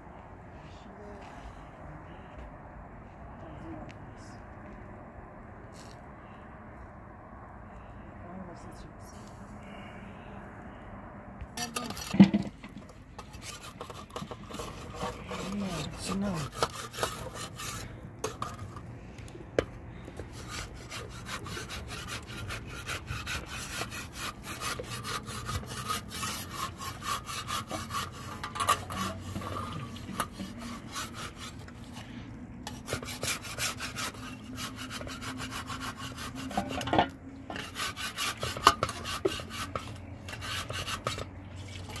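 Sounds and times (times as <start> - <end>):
cloth scraping bread on griddle: 11.6 - 18.8, 20.3 - 32.1, 32.7 - 41.3.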